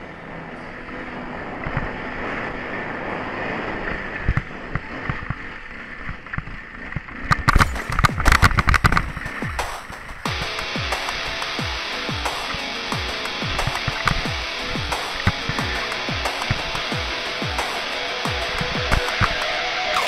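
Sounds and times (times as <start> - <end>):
motorcycle engine running: 0.0 - 20.0
wind rushing over helmet: 0.4 - 10.3.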